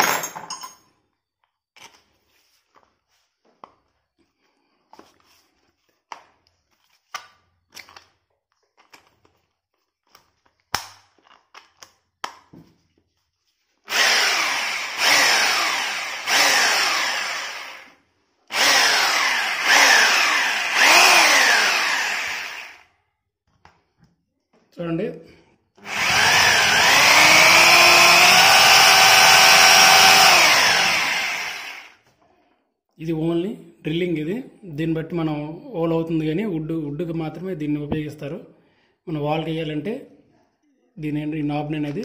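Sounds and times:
drill motor whining: 13.9s - 22.8s, 25.8s - 32.0s.

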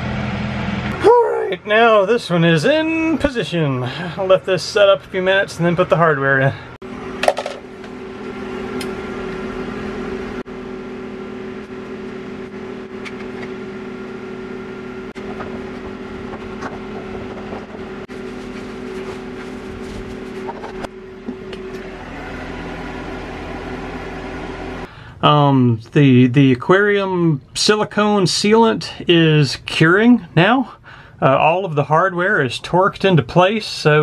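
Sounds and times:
mechanical hum: 0.0s - 25.8s.

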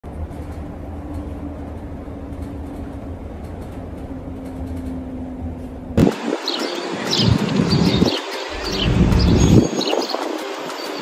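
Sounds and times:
transit vehicle ride rumble: 0.0s - 11.0s
steady hum: 5.3s - 9.8s.

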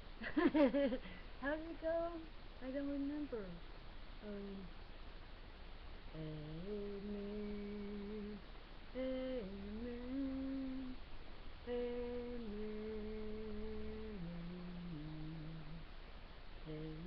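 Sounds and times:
woman humming a slow tune: 4.2s - 4.7s, 6.1s - 11.0s, 11.6s - 15.9s, 16.6s - 17.0s.

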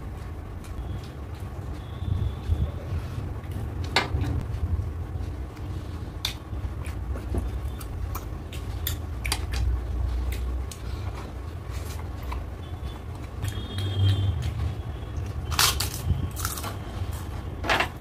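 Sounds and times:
steady low rumble: 0.0s - 17.6s
person chewing food: 5.1s - 12.5s, 13.1s - 16.8s.

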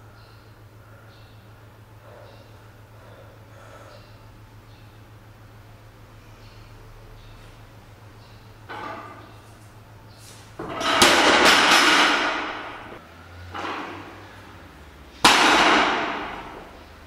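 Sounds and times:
rattle of plates: 8.7s - 9.4s, 10.6s - 14.3s
barbell banging on platform: 10.6s - 14.2s, 15.2s - 16.8s.

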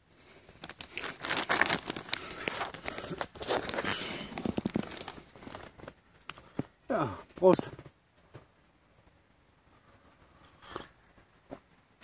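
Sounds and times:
dry leaves and twigs crackling: 0.4s - 6.8s.

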